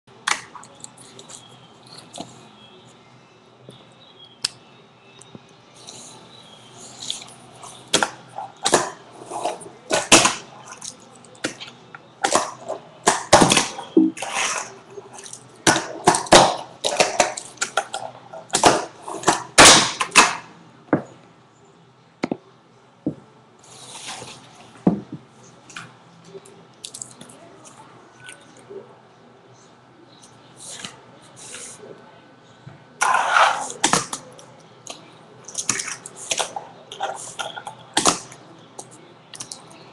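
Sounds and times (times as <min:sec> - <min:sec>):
fingerboard rolling scrapes: 0:33.0 - 0:33.8.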